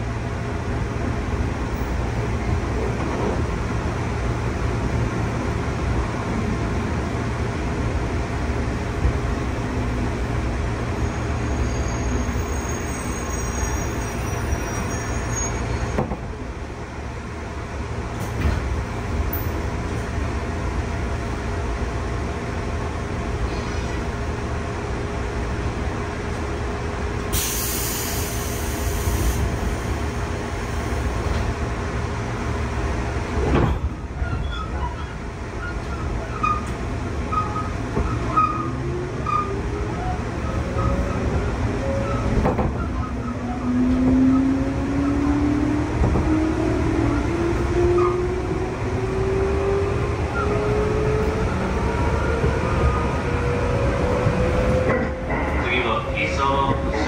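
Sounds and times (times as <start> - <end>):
train interior rumble: 0.0 - 57.0
short air hiss: 27.3 - 29.5.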